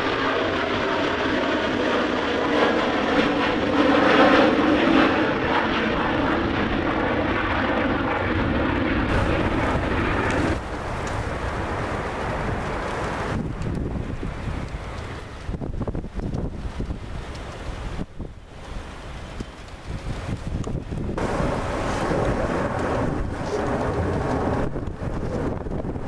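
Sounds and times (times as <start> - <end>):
jet engine roar: 0.0 - 26.0
wind noise on microphone: 9.1 - 26.0.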